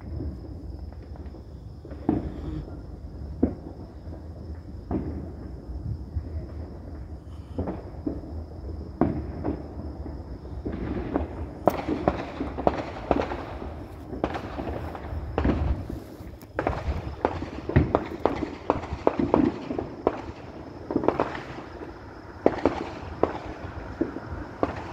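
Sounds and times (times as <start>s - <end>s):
low steady rumble: 0.0s - 11.6s
fireworks popping and banging: 0.0s - 24.9s.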